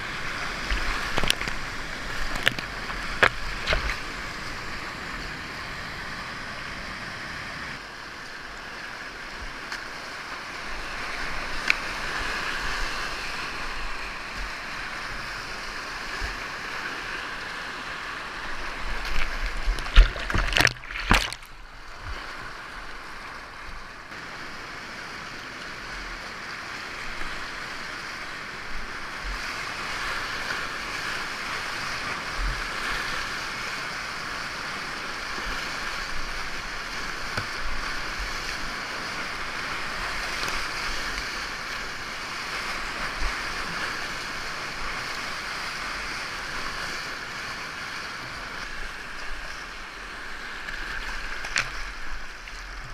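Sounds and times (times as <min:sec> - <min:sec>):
whitewater rapids rushing: 0:09.9 - 0:21.7
loud knocks and splashes: 0:19.1 - 0:21.5.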